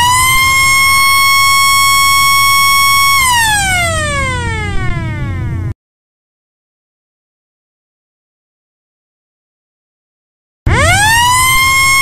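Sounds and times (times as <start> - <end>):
rotary siren wailing: 0.0 - 5.7, 10.7 - 12.0.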